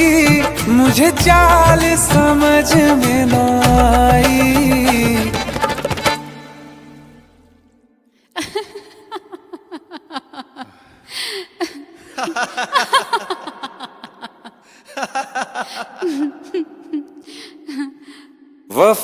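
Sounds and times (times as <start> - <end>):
person laughing: 8.4 - 18.0.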